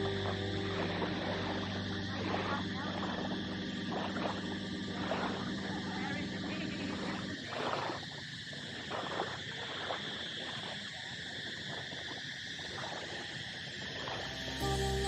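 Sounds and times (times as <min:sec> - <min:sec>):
high-pitched buzz: 0:00.0 - 0:05.4, 0:14.2 - 0:15.0
steady low hum: 0:00.0 - 0:07.6.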